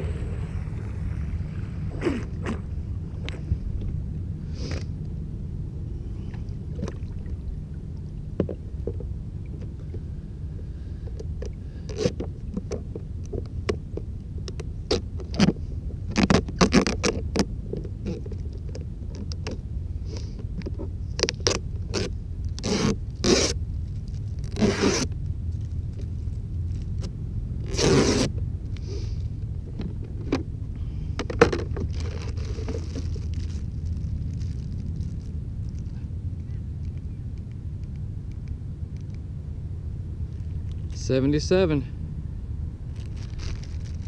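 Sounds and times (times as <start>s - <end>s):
hull scraping on dock: 0.0s - 4.9s
steady low rumble: 0.0s - 44.0s.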